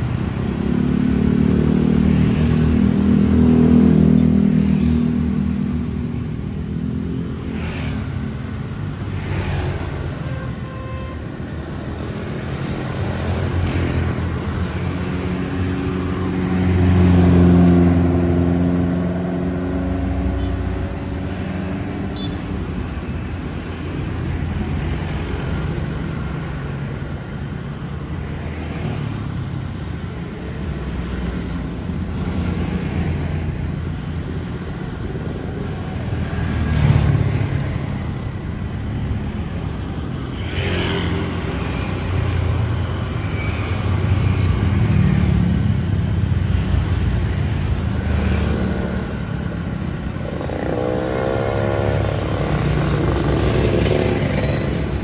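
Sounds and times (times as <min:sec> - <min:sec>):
cars passing: 0:00.0 - 0:55.0
tyres on the road: 0:00.0 - 0:55.0
motorbike accelerating: 0:50.2 - 0:55.0.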